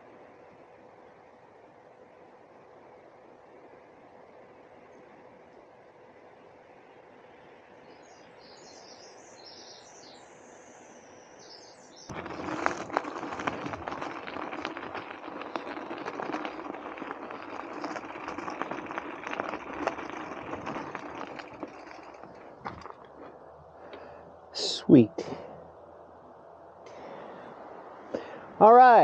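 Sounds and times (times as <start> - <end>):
birds chirping: 7.8 - 12.4
bike rattling: 12.1 - 23.5
bike tyres crunching on dirt trail: 12.1 - 24.2.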